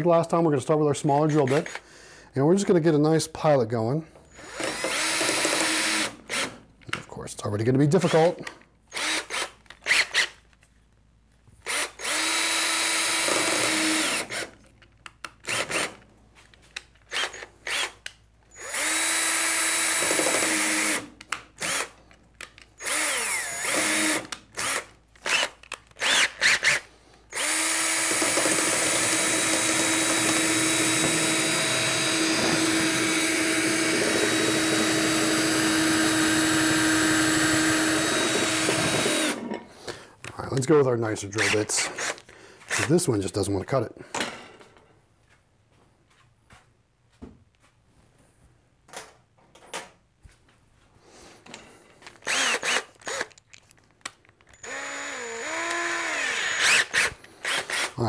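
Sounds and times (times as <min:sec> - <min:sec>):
cordless drill drilling into metal: 0:04.3 - 0:06.6, 0:08.0 - 0:10.3, 0:11.6 - 0:14.6, 0:15.4 - 0:16.0, 0:17.1 - 0:22.0, 0:22.8 - 0:39.5, 0:41.4 - 0:42.9, 0:52.2 - 0:53.4, 0:54.6 - 0:58.0.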